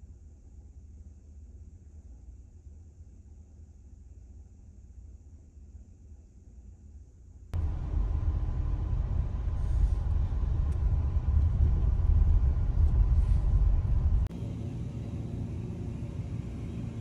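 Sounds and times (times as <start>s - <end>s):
steady hum: 0.0s - 17.0s
car cabin road rumble: 7.6s - 17.0s.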